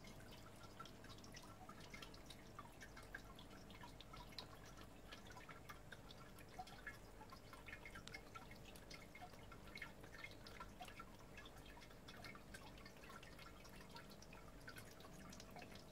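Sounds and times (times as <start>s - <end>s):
water dripping into basin: 0.0s - 15.9s.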